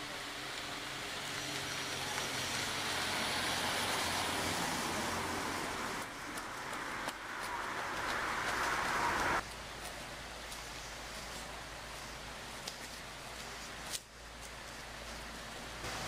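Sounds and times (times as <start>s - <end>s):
road noise: 0.0s - 16.0s
car passing: 0.3s - 9.4s.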